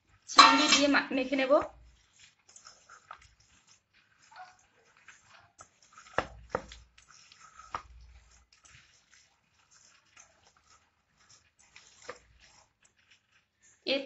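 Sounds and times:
hand squishing wet mash: 0.0 - 14.0.

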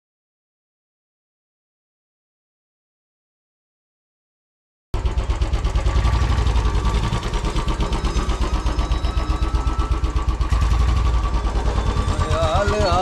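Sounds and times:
motorcycle engine idling: 5.0 - 13.0.

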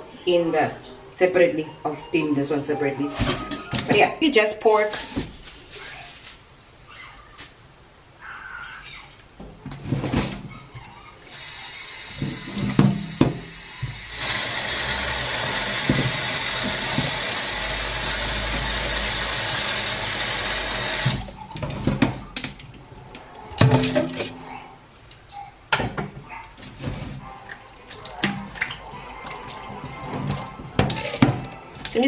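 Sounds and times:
plastic bag rustling: 4.6 - 8.3
tap water running into tub: 11.3 - 21.7, 27.5 - 32.0.

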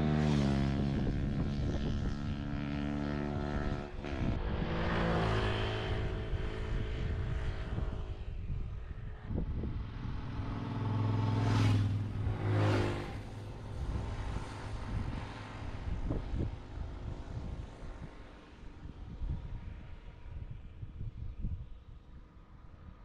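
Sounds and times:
small motorcycle engine running: 0.0 - 18.0.

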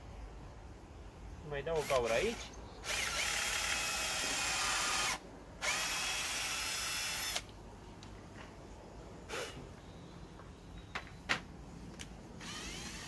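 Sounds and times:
cordless drill boring wood: 1.8 - 7.4, 12.4 - 13.0.

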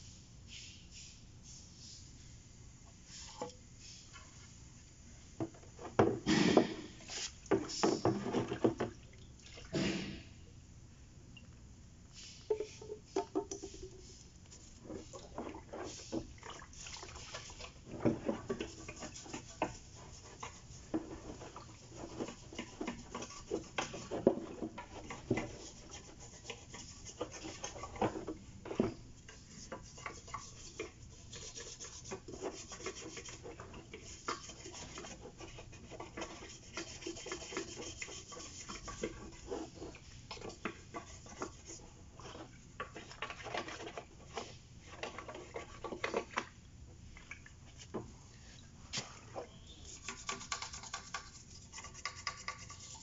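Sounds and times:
scrubbing and scraping metal: 17.2 - 46.3.

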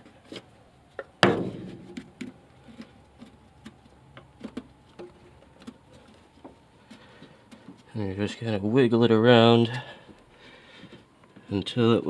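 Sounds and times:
knock: 1.2 - 2.0.

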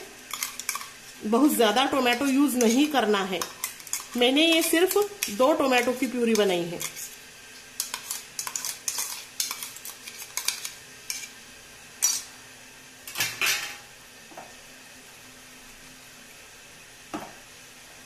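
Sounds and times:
metal spoon scraping steel bowl: 6.3 - 7.1, 7.8 - 11.3.

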